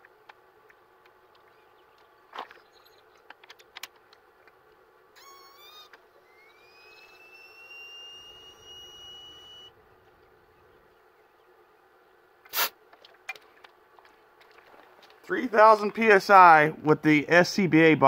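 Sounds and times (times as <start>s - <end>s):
high-pressure air whistling: 5.3s - 9.7s.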